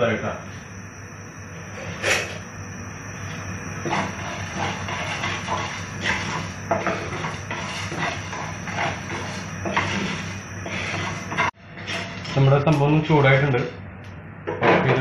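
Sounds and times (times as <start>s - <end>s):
spatula scraping a pan: 3.2s - 12.5s.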